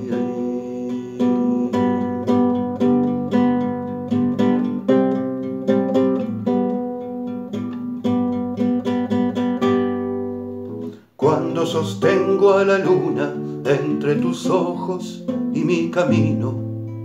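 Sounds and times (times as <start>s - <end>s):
classical guitar strummed: 0.0s - 17.0s.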